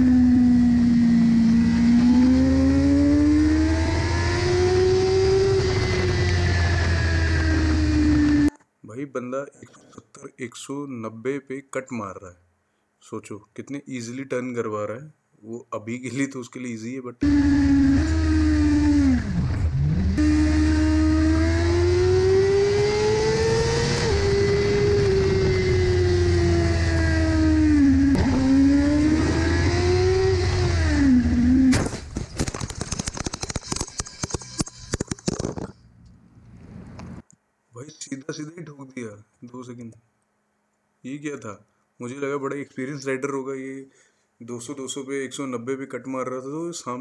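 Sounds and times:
motorcycle engine accelerating: 0:00.0 - 0:08.5, 0:17.2 - 0:31.8.

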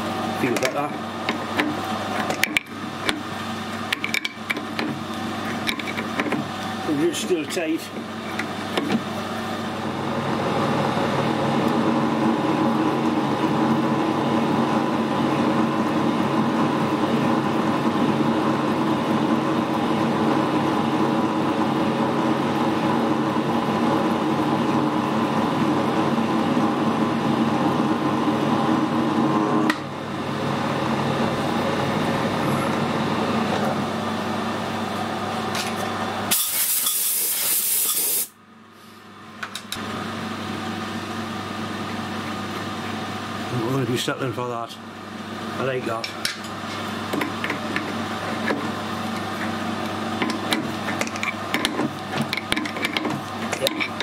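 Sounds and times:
lathe drive hum and whine: 0:00.0 - 0:37.0, 0:38.2 - 0:54.0
compressed air hiss: 0:36.4 - 0:38.3.

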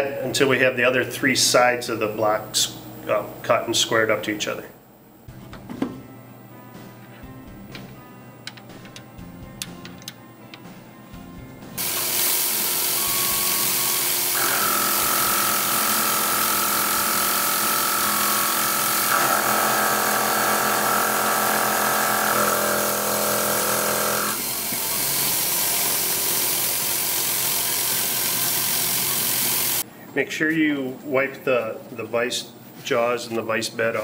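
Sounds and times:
milling machine hiss: 0:11.8 - 0:29.8
spindle and cutter whining: 0:11.8 - 0:29.8.

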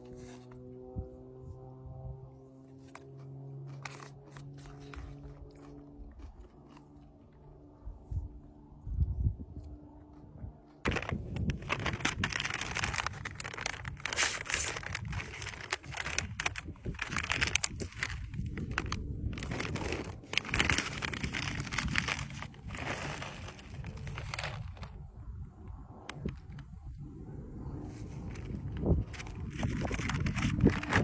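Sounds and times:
foil food pouch crinkling: 0:03.7 - 0:06.9, 0:10.9 - 0:25.0, 0:28.3 - 0:31.0.

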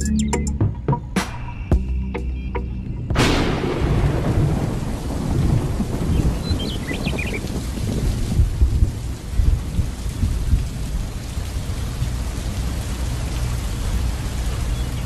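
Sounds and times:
low thunder rumbling: 0:03.0 - 0:11.2
steady rain falling: 0:03.2 - 0:15.0.

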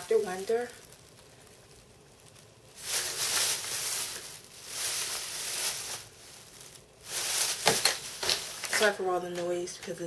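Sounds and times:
plastic bag rustling: 0:00.0 - 0:09.9.

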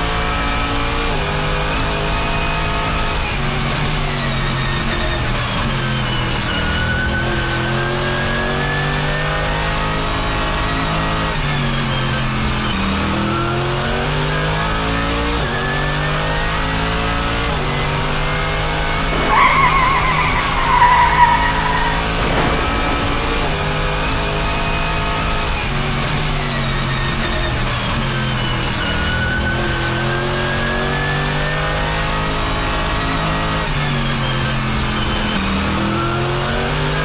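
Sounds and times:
race car engines revving: 0:16.3 - 0:24.0
tyre squeals: 0:19.1 - 0:23.6.

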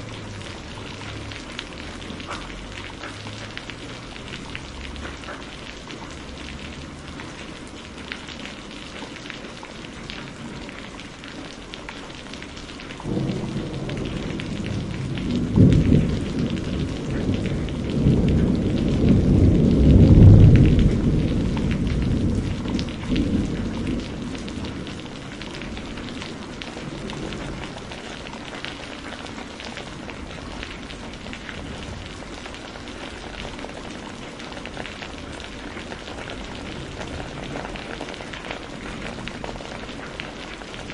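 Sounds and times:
steady rain falling: 0:00.0 - 0:40.9
thunder rolling: 0:13.0 - 0:29.5, 0:30.1 - 0:40.9.

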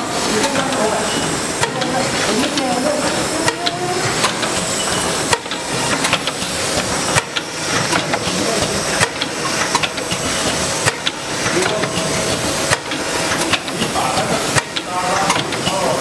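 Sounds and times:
packing machine hiss: 0:00.0 - 0:16.0.

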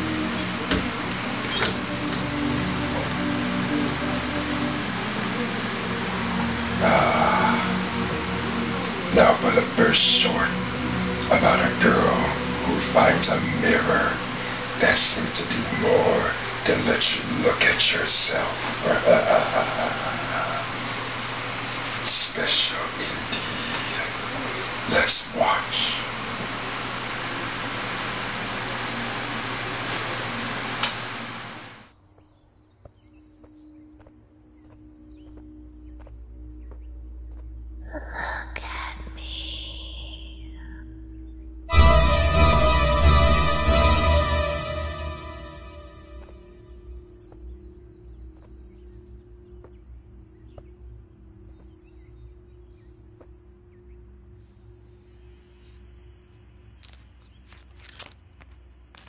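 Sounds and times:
soft musical drone: 0:00.0 - 0:20.7, 0:41.0 - 0:46.9
room hiss: 0:00.0 - 0:31.9
faint bird chirps: 0:39.4 - 0:41.5.

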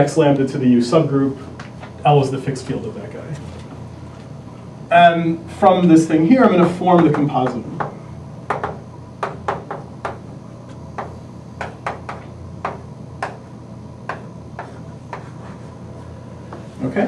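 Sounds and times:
chalk tapping on blackboard: 0:11.0 - 0:13.4, 0:14.1 - 0:15.7.

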